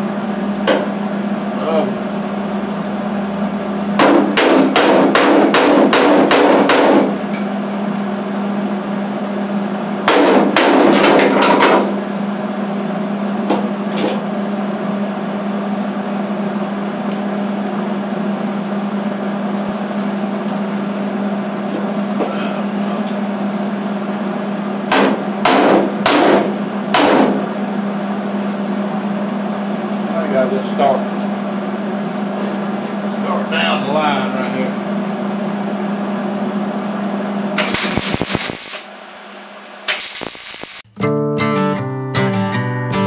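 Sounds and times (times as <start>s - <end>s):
steady low hum: 0.0s - 40.9s
hammer striking sheet metal: 4.0s - 7.2s, 10.1s - 11.9s, 24.9s - 27.4s.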